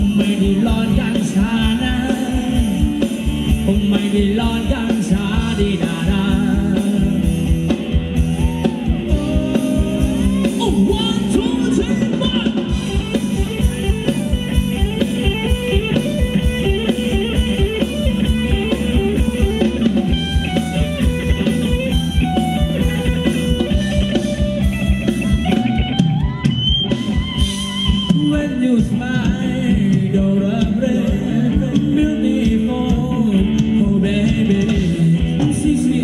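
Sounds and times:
drum kit beat: 0:00.0 - 0:36.0
guitar melody: 0:00.0 - 0:36.0.

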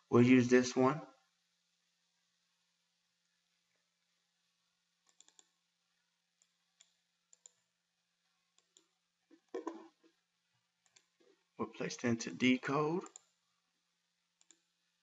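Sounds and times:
faint computer mouse clicks: 0:05.0 - 0:05.5, 0:06.4 - 0:07.6, 0:08.6 - 0:08.9, 0:10.8 - 0:11.1, 0:14.4 - 0:14.6.

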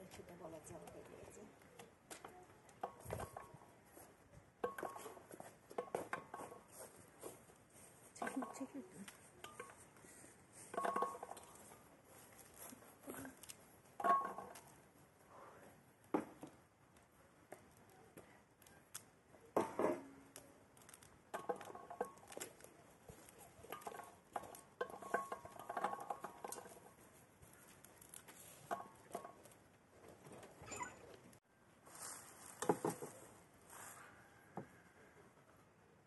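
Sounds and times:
peel tearing crackles: 0:20.3 - 0:21.1.

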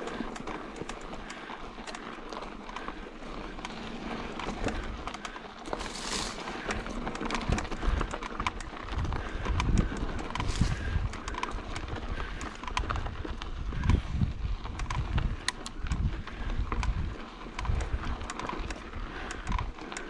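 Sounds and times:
bike rattling clicks: 0:00.0 - 0:20.0
wind noise on microphone: 0:05.8 - 0:20.0.

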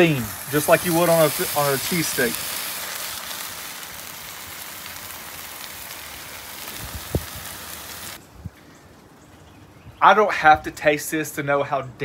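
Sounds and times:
meat and vegetables sizzling on griddle: 0:00.0 - 0:08.2.

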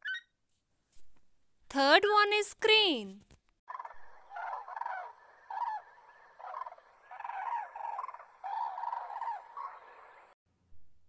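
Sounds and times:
crane calls: 0:03.7 - 0:10.4.

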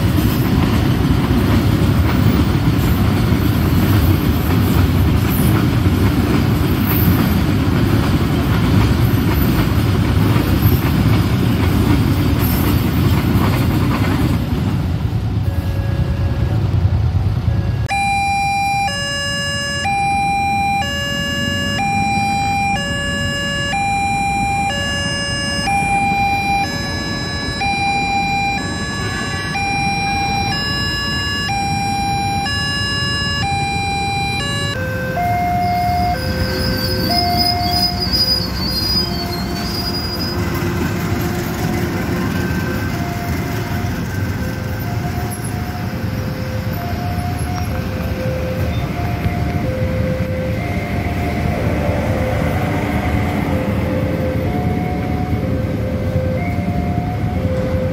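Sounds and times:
train rumbling past: 0:00.0 - 0:18.0, 0:18.8 - 0:57.9
railroad crossing alarm: 0:00.0 - 0:57.9.

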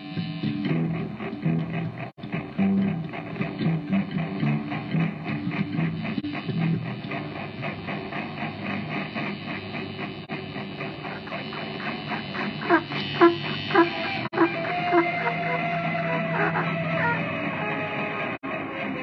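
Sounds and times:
plucked guitar notes: 0:00.0 - 0:07.6.

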